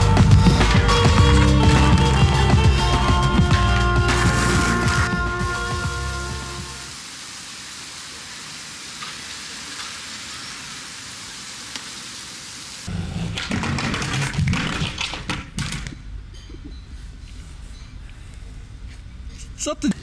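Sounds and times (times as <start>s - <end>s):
background music: 0.0s - 6.9s
street background hiss: 0.0s - 13.1s, 16.9s - 20.0s.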